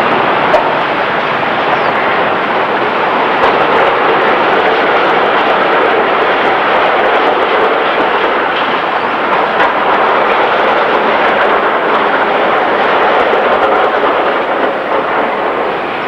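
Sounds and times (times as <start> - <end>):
city traffic: 0.0 - 3.6
tram moving: 0.0 - 16.0.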